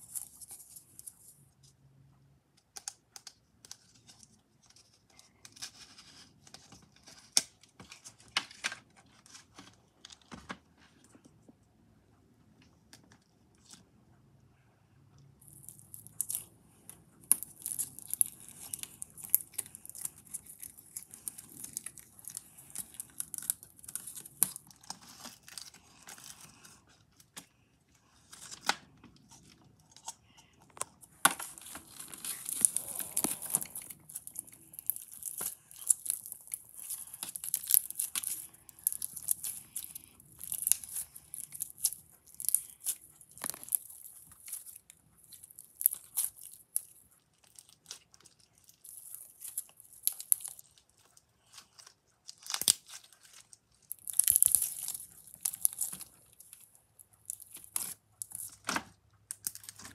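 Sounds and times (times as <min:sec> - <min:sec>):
bead slime crackling and popping: 0:15.4 - 0:26.5, 0:29.4 - 0:59.9.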